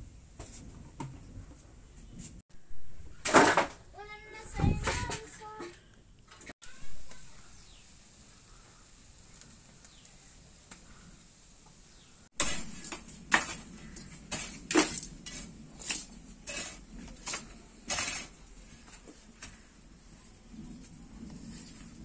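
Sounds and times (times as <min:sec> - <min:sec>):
hand tool striking earth: 0:12.4 - 0:19.6.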